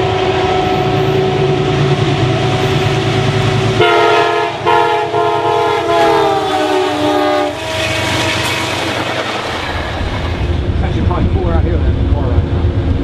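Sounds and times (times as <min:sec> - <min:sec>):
train air horn chord: 0:00.0 - 0:02.8, 0:03.8 - 0:09.0
diesel locomotive droning: 0:00.0 - 0:13.0.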